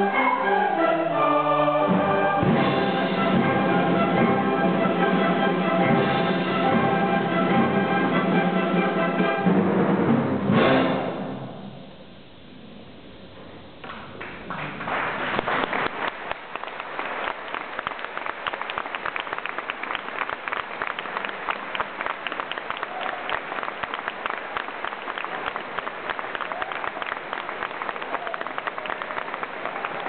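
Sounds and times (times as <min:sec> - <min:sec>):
audience applause: 0:13.8 - 0:30.0.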